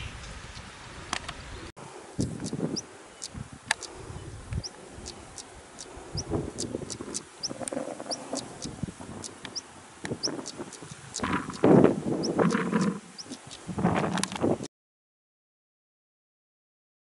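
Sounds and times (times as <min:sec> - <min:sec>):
bird tack calls: 0:04.6 - 0:14.5.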